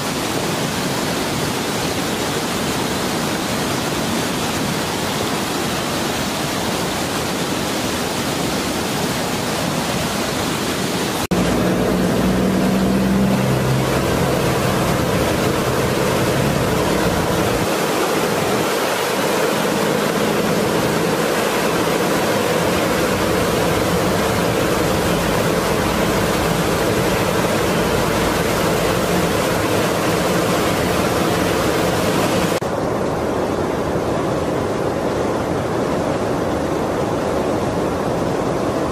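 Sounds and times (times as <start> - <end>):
river rushing: 0.0 - 38.9
water pouring over a weir: 11.3 - 32.6.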